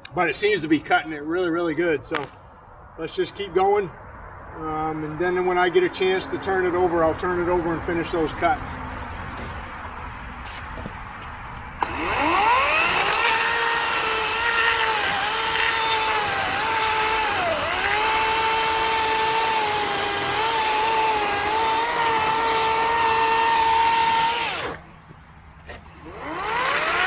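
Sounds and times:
chain cutting into wood: 11.8 - 24.8
chainsaw motor whining: 11.8 - 24.9, 25.8 - 27.0.

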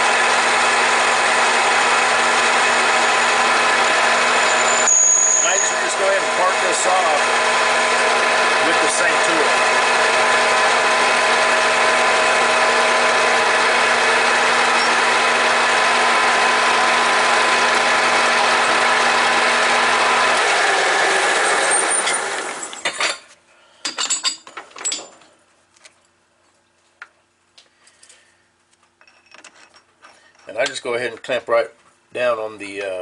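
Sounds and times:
lathe spinning down: 0.0 - 22.9
lathe gear whine: 0.0 - 23.0.

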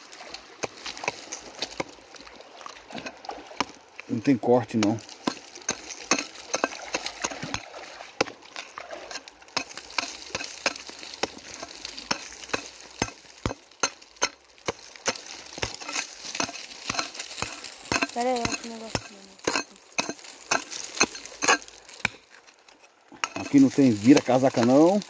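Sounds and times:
hand hoe chopping dry soil: 0.0 - 2.2, 2.8 - 25.0.

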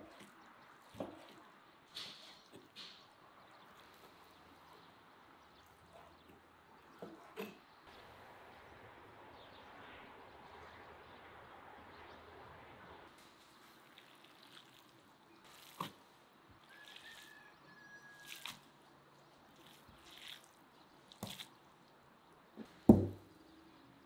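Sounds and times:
wet squelches of mixing meat: 0.0 - 6.2, 13.2 - 22.5
thump: 22.9 - 23.2.

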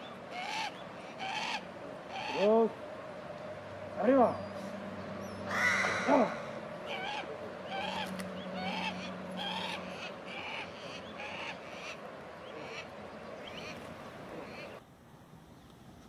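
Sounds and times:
bird of prey harsh calls: 0.3 - 2.5, 5.2 - 13.8.

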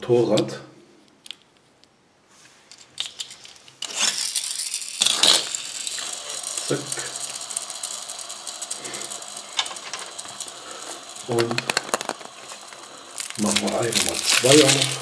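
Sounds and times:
paper leaflet crinkling: 11.4 - 15.0.

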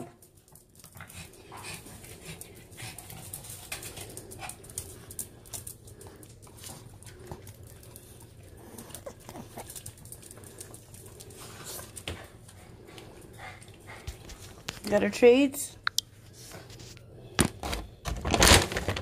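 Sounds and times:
dog claws clicking on tile: 0.0 - 14.9.

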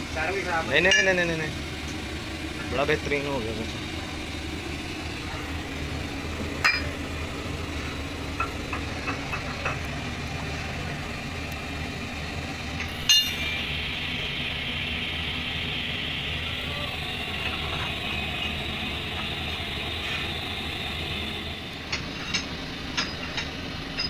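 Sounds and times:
steady hiss: 0.0 - 23.9
low hum: 0.0 - 24.0
metal tools clinking on steel: 12.8 - 13.6.

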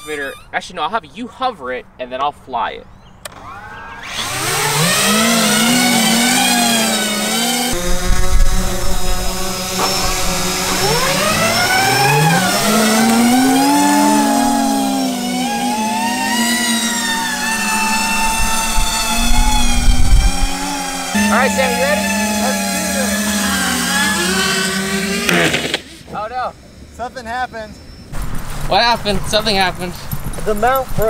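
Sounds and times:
electric motors and propellers whining: 3.2 - 28.7
wind rumbling on microphone: 7.7 - 14.7, 17.2 - 21.0.

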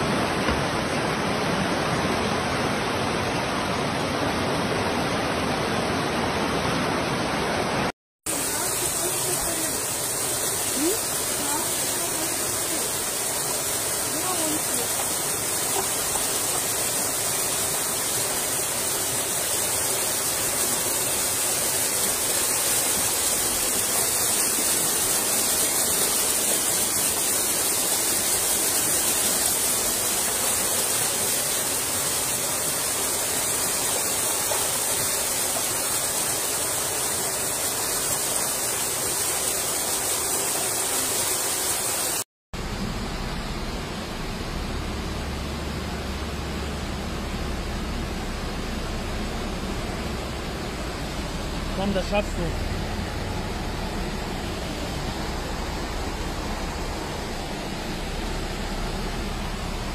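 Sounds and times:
floodwater rushing: 0.0 - 59.9
low water rumble: 42.6 - 59.9.

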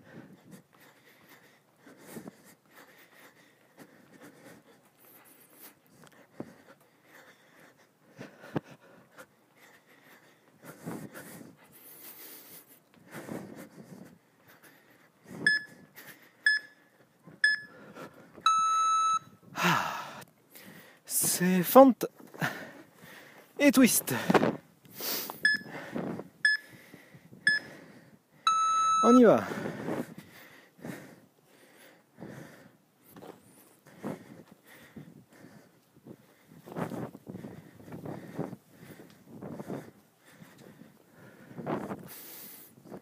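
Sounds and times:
person breathing hard: 0.0 - 18.4, 19.5 - 21.1, 22.3 - 28.5, 29.2 - 43.0
long timer beep: 15.5 - 15.7, 16.5 - 16.8, 17.4 - 17.8, 18.4 - 19.4, 25.4 - 25.7, 26.4 - 26.6, 28.5 - 29.4
short timer beeps: 15.5 - 15.7, 16.5 - 16.8, 17.4 - 17.7, 18.4 - 19.3, 25.4 - 25.7, 26.4 - 26.6, 28.5 - 29.3
footfalls: 23.3 - 24.6.

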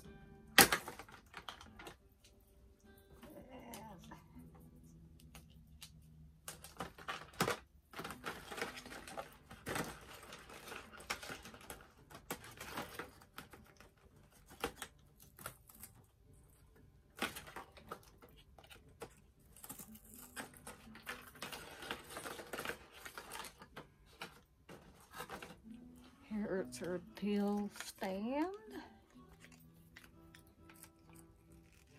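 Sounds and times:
packaging rustling: 6.4 - 16.0, 17.1 - 25.9.

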